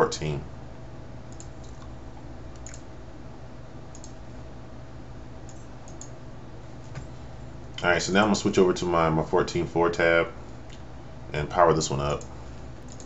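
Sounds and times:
steady low hum: 0:00.0 - 0:13.0
faint mouse clicks: 0:02.6 - 0:02.8, 0:03.9 - 0:04.2, 0:05.5 - 0:06.2, 0:12.2 - 0:13.0.

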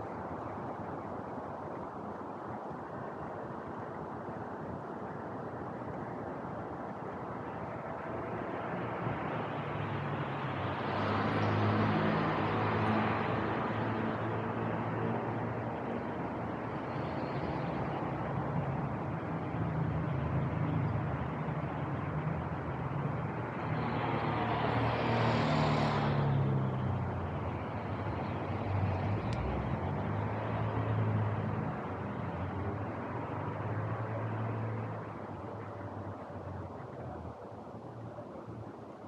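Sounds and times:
low traffic hum: 0:00.0 - 0:39.0
car passing close: 0:07.7 - 0:15.4, 0:22.5 - 0:37.2.

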